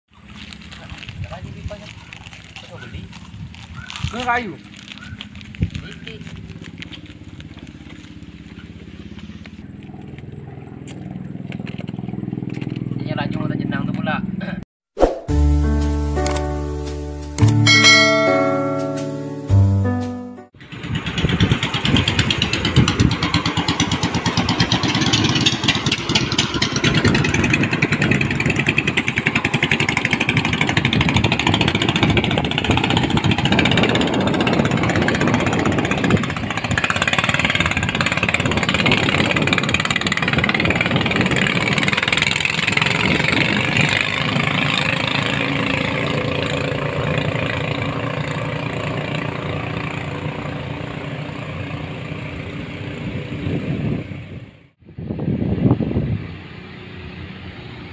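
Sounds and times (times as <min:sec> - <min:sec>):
racing boat engines droning: 0:20.6 - 0:54.7.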